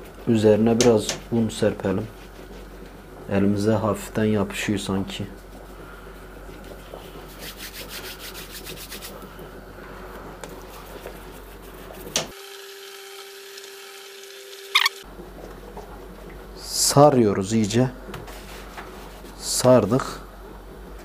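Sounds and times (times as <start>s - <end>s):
hands rubbing dough: 0.0s - 3.0s, 5.1s - 12.3s, 18.2s - 20.2s
sharp squeak: 14.7s - 15.0s.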